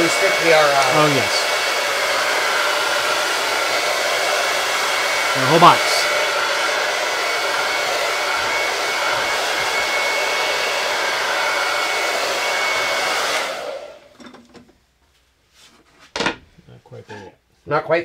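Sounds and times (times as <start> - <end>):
hot-air dryer blowing: 0.0 - 14.3.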